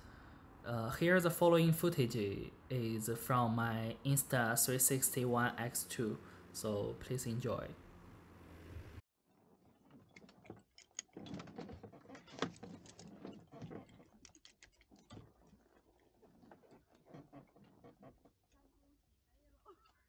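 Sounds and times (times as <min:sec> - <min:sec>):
faint clicking and crackling: 0:09.6 - 0:20.0.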